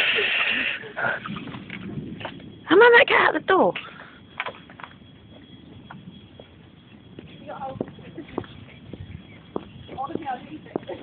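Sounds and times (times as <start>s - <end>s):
footsteps on wet pavement: 3.8s - 11.0s.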